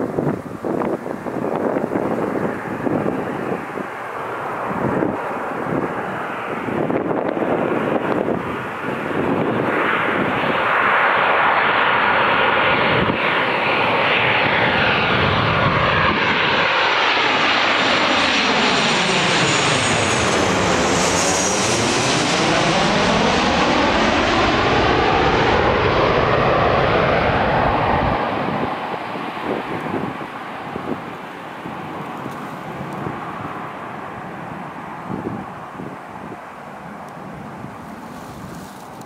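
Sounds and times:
jet roar with whine: 0.0 - 39.0.

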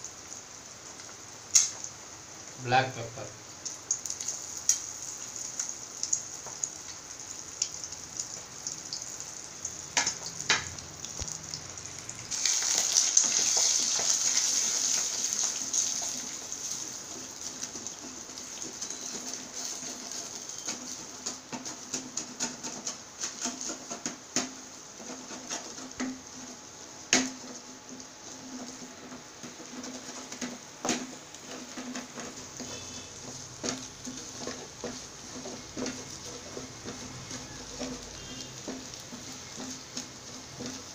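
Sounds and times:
eggs sizzling in a pan: 0.0 - 40.9
spatula scraping and tapping pan: 12.7 - 40.9.

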